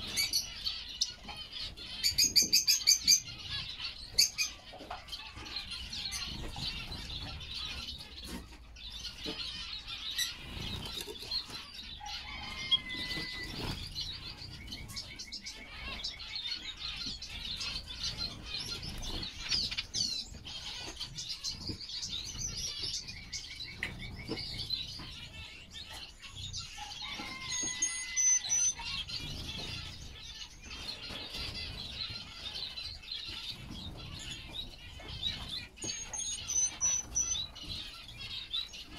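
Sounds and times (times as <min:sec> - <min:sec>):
finches twittering: 0:12.5 - 0:38.9.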